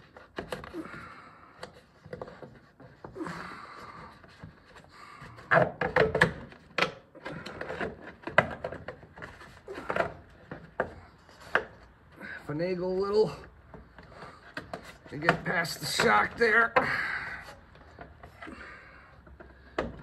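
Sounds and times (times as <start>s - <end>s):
plastic scraping and rubbing: 0.0s - 12.1s, 13.2s - 16.8s
sharp plastic knocks: 5.4s - 12.0s, 13.6s - 17.0s, 19.2s - 20.0s.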